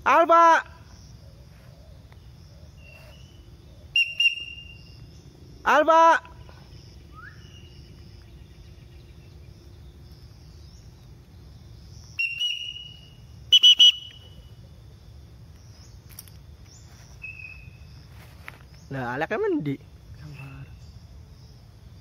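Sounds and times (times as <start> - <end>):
faint insect buzz: 0.8 - 22.0
whistled notes: 3.9 - 4.9, 7.1 - 7.6, 12.2 - 14.4.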